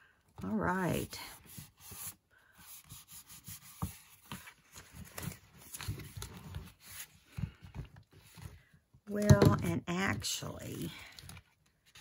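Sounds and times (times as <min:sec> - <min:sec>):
paper pages rustling: 0:03.6 - 0:08.7.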